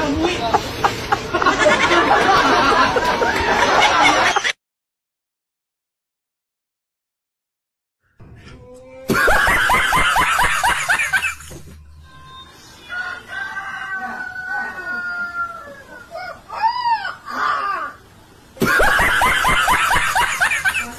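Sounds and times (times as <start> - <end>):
snickering laughter: 0.8 - 4.6, 9.1 - 11.5, 18.6 - 20.9
puppy howling and yelping: 14.6 - 18.0.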